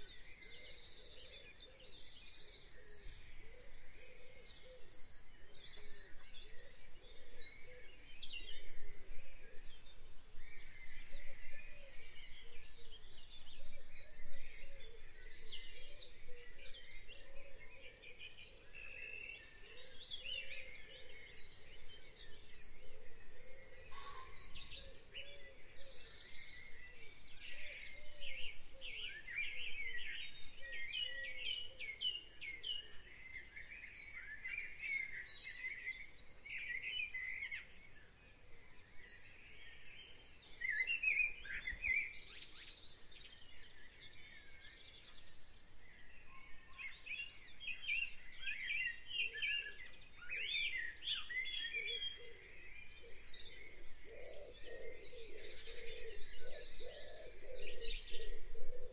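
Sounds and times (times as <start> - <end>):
songbirds singing: 0.0 - 58.9.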